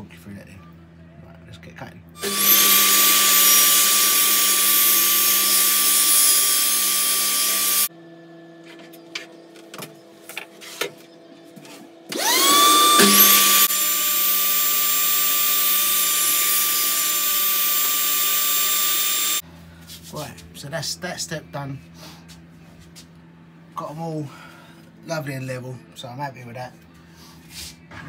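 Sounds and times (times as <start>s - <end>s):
table saw cutting wood: 2.2s - 7.9s, 12.1s - 19.4s.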